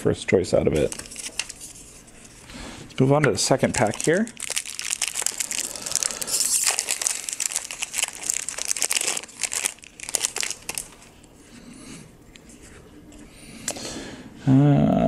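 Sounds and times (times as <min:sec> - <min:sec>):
foil wrapper crinkling and tearing: 0:00.7 - 0:01.7, 0:03.4 - 0:11.3
cards rustling: 0:00.7 - 0:02.4, 0:03.4 - 0:11.3.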